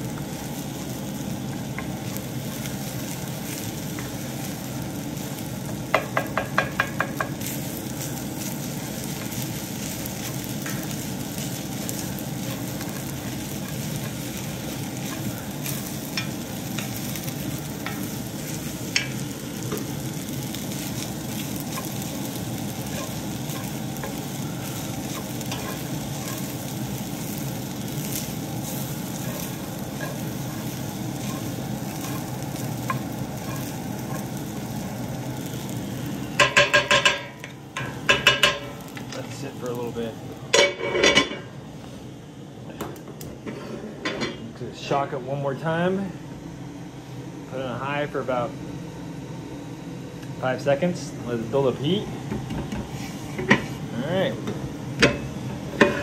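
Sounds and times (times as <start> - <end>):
rice sizzling in skillet: 0.0 - 41.8, 52.8 - 56.0
spatula scraping skillet: 9.1 - 19.2, 20.8 - 34.4, 55.7 - 56.0.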